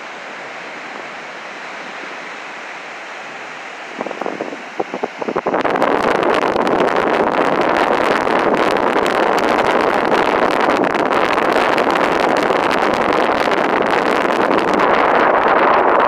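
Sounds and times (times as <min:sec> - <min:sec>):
ocean surf breaking: 0:00.0 - 0:16.0
wind buffeting microphone: 0:00.0 - 0:16.0.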